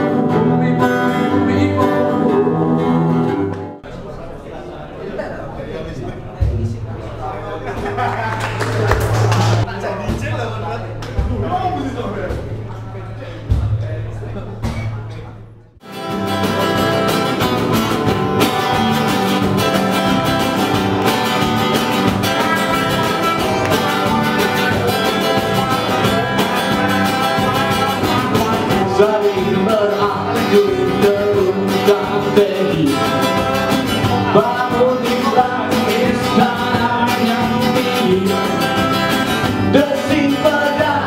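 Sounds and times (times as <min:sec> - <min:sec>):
man singing: 0:00.0 - 0:03.5, 0:22.2 - 0:41.0
acoustic guitar strumming: 0:00.0 - 0:03.9, 0:15.8 - 0:41.0
band playing guitar music: 0:00.0 - 0:03.9, 0:07.8 - 0:10.4, 0:15.8 - 0:41.0.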